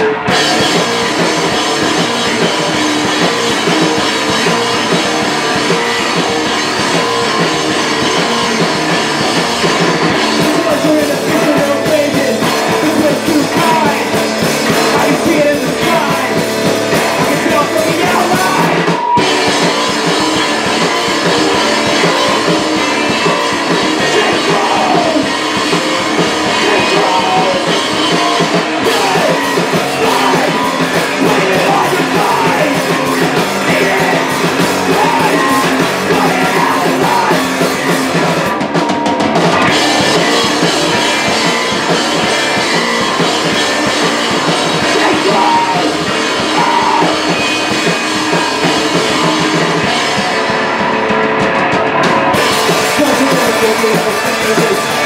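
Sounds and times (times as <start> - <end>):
live rock band playing: 0.0 - 55.0
man singing: 9.6 - 19.6, 20.6 - 38.5, 43.4 - 50.0, 52.4 - 55.0.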